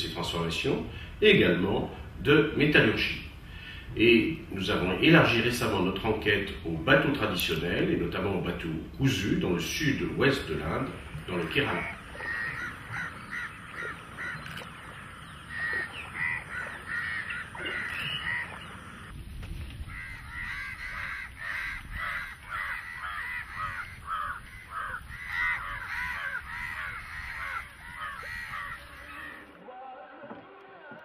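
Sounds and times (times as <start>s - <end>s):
crows cawing: 11.7s - 19.1s, 19.9s - 29.5s.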